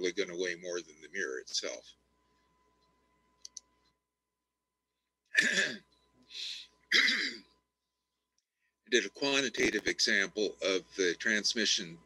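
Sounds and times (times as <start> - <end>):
faint mouse clicks: 2.7 - 4.0
man coughing: 5.4 - 5.8, 6.9 - 7.4.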